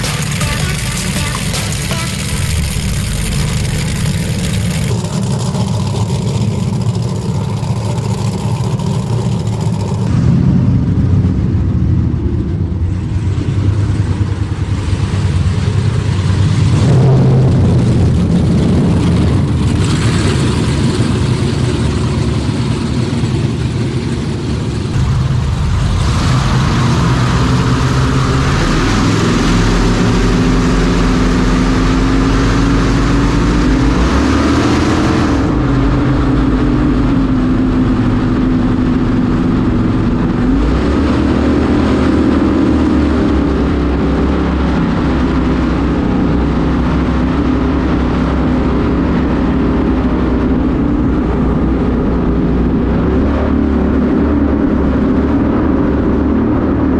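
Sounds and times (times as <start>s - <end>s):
rushing water: 0.0s - 10.2s, 12.8s - 56.9s
powerboat engines running hard: 0.0s - 56.9s
wind noise: 24.9s - 56.9s.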